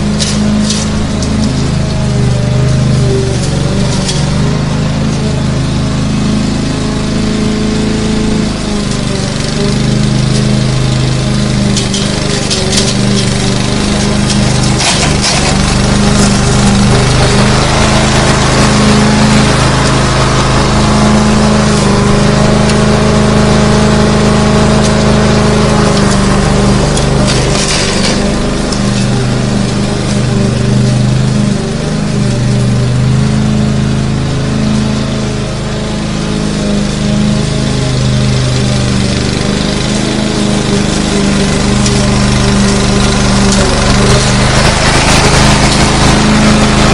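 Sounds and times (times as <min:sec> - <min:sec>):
lawn mower engine running: 0:00.0 - 0:46.9.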